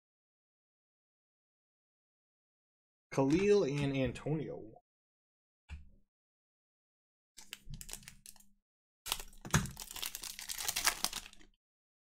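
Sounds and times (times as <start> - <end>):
foil wrapper crinkling: 7.4 - 8.4, 9.1 - 11.6.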